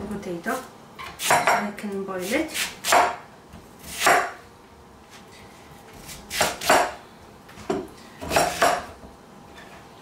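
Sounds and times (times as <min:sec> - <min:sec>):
knife chopping on wooden board: 0:02.6 - 0:03.2, 0:03.8 - 0:04.4, 0:06.0 - 0:07.0, 0:07.7 - 0:08.9.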